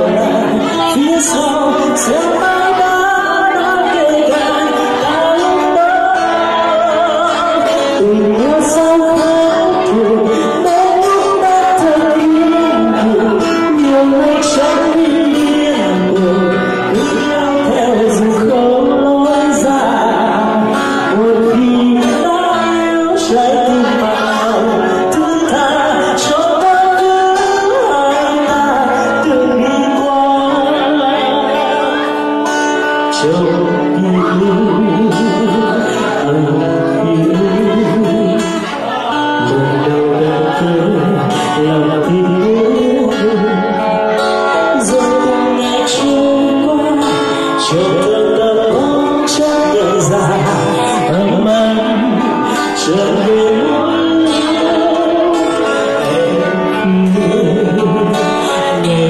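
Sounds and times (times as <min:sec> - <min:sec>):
acoustic guitar: 0:00.0 - 0:59.0
man singing into microphone: 0:00.0 - 0:59.0.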